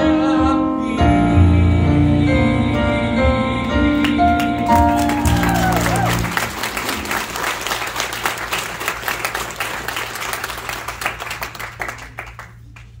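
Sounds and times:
audience applauding: 0:04.0 - 0:13.0.

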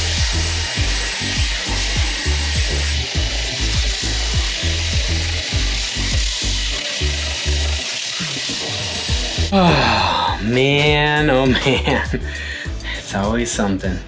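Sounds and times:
belt sander hissing: 0:00.0 - 0:09.6
music with bass beat: 0:00.0 - 0:13.4.

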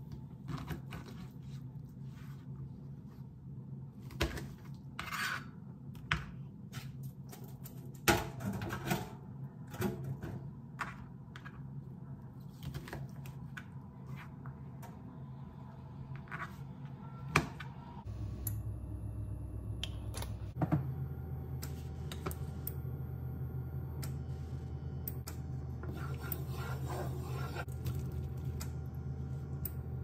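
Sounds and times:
steady low hum: 0:13.1 - 0:30.0.

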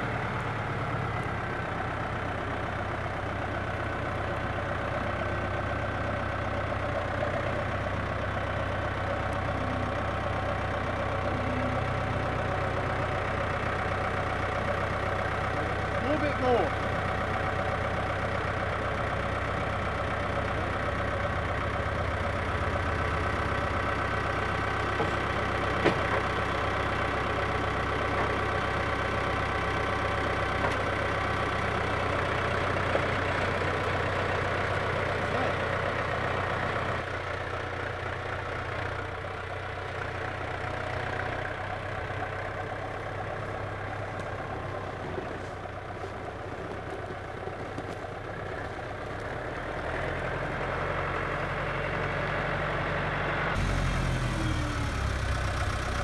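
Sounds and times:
tractor diesel engine idling: 0:00.0 - 0:56.0
sharp engine knocks: 0:25.0 - 0:26.3.

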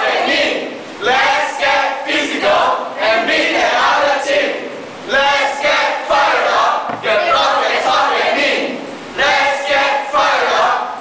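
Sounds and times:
cheerleaders shouting a chant: 0:05.1 - 0:11.0.

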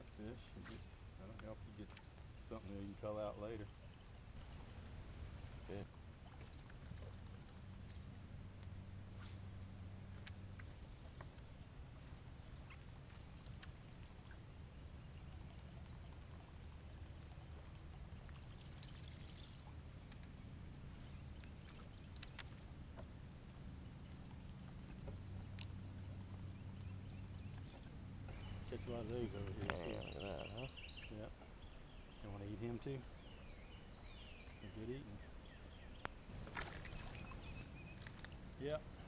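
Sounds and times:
insect chorus drone: 0:00.0 - 0:39.0
low steady hum: 0:00.0 - 0:39.0
faint clicks: 0:13.4 - 0:13.8, 0:21.0 - 0:23.1, 0:24.9 - 0:25.8, 0:27.5 - 0:30.3, 0:36.0 - 0:38.4.

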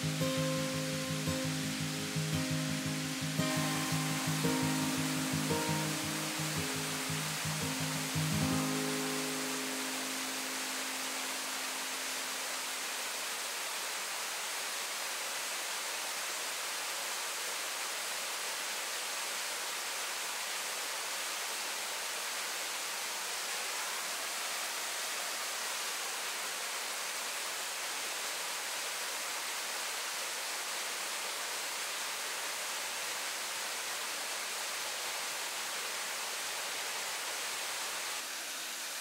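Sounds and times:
music note: 0:00.0 - 0:11.8
mountain stream rushing: 0:00.0 - 0:39.0.

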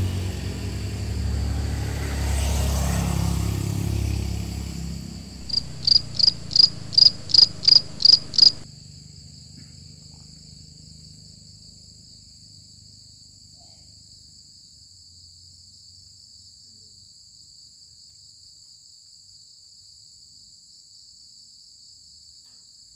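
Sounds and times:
cricket chirping loudly: 0:00.0 - 0:08.6
crickets trilling: 0:00.0 - 0:08.6.

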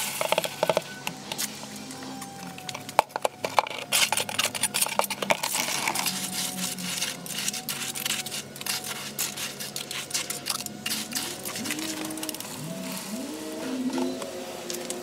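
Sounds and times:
gravel crackling and clinking: 0:02.2 - 0:13.2
wet concrete pouring and slopping: 0:02.5 - 0:13.1.

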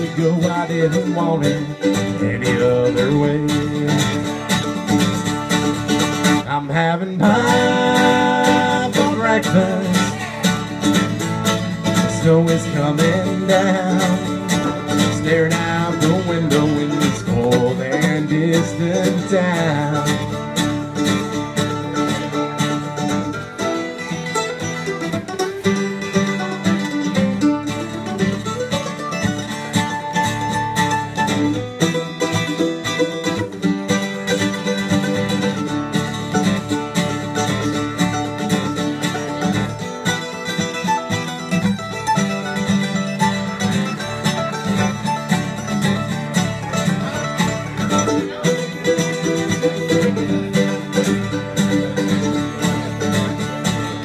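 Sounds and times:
plucked lead string melody: 0:00.0 - 0:54.0
strummed acoustic guitar: 0:00.0 - 0:54.0.

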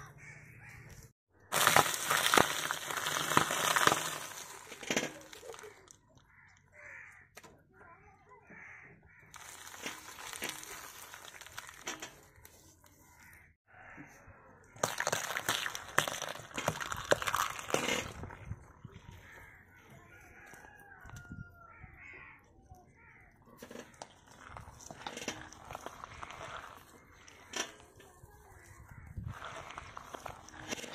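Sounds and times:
eggshells cracking under a tyre: 0:01.4 - 0:06.7, 0:09.3 - 0:13.4, 0:14.7 - 0:21.4, 0:23.3 - 0:30.9
biscuit packets crinkling and popping: 0:01.5 - 0:06.0, 0:09.3 - 0:12.6, 0:14.8 - 0:18.5, 0:23.9 - 0:28.7, 0:29.3 - 0:30.9
yolk squelching: 0:01.5 - 0:06.0, 0:09.3 - 0:13.4, 0:14.7 - 0:20.6, 0:23.3 - 0:30.9.

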